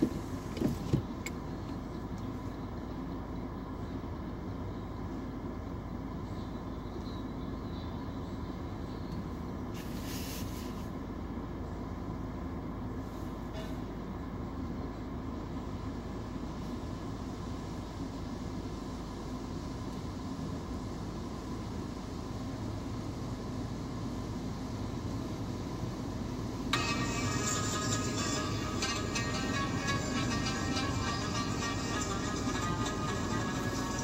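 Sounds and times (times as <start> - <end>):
car wash machinery rumbling: 15.2 - 34.0.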